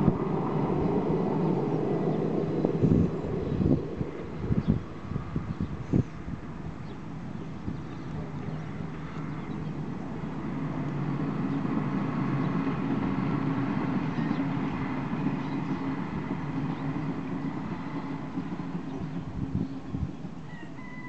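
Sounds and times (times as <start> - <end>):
faint engine whine: 0.0 - 21.0
train diesel engines humming: 0.0 - 21.0.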